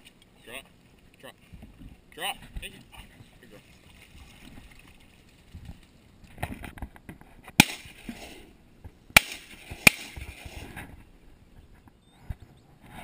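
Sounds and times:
shotgun shots echoing: 7.6 - 8.1, 9.2 - 10.3.

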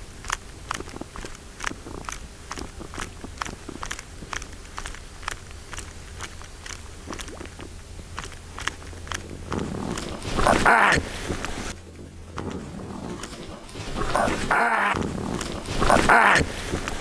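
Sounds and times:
fishing lure clicking: 0.2 - 9.3
water splashing rush: 1.0 - 17.0.

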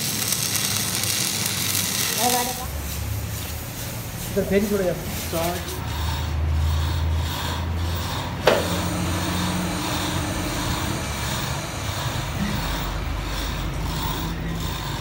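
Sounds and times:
workshop low hum: 0.0 - 15.0
sharp knock: 8.4 - 8.9.

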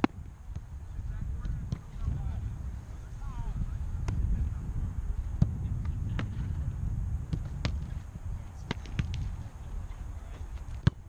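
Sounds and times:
footballs struck and caught: 0.0 - 0.7, 1.4 - 2.3, 4.0 - 4.4, 5.4 - 6.6, 7.2 - 11.0
steady low rumble: 0.0 - 11.0.

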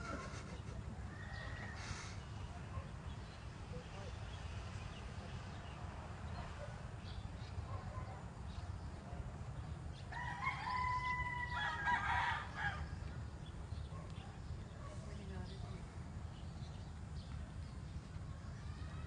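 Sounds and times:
rooster crowing: 10.1 - 13.0.

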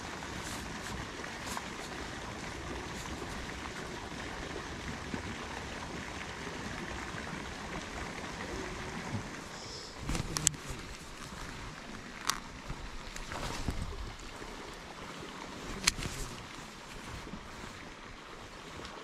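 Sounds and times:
rushing water: 0.0 - 19.0
faint clicks: 10.0 - 13.8.

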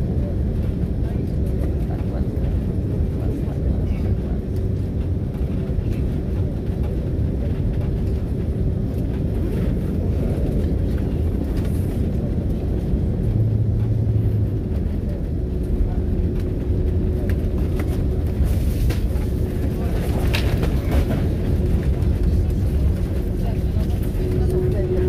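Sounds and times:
airliner cabin rumble: 0.0 - 25.0
deeper hum: 6.3 - 25.0.

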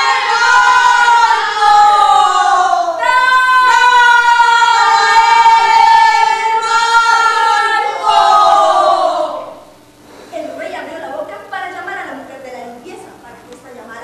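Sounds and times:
group of people shouting: 0.0 - 9.6.

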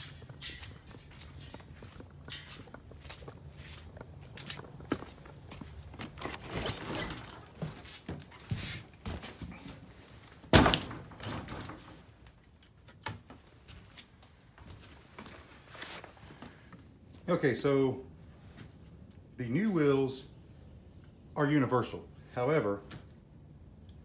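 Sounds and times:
door shutting with thud: 10.5 - 11.9
wooden door knocks and rattles: 10.5 - 11.9.

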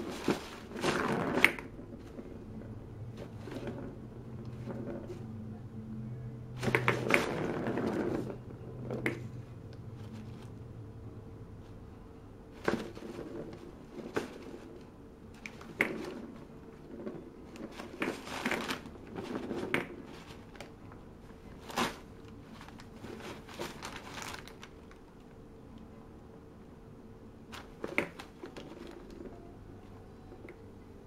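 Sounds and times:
wrapping paper rustling: 0.0 - 1.7, 17.5 - 20.8, 21.4 - 25.2.

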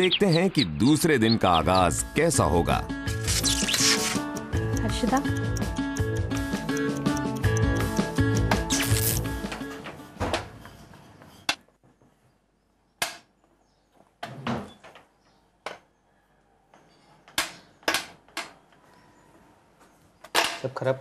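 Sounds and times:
background music: 0.0 - 10.6.

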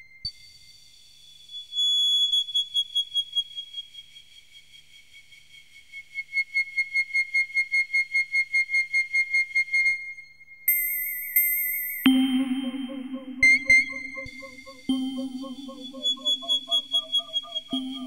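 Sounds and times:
high synthesized electronic tone: 12.1 - 18.0.

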